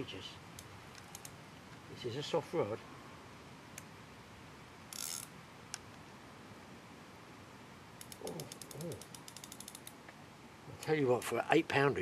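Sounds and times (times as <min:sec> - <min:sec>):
fishing reel drag ticking: 0:05.0 - 0:05.3, 0:08.0 - 0:09.9.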